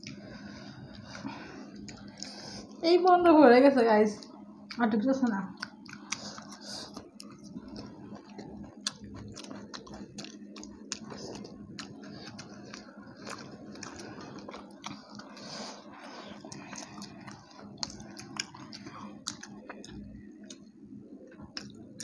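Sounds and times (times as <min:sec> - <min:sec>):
people chewing and crunching food: 0:00.0 - 0:03.2, 0:04.2 - 0:22.0
faint steady hum: 0:00.0 - 0:22.0
wet mouth clicks: 0:05.6 - 0:13.9.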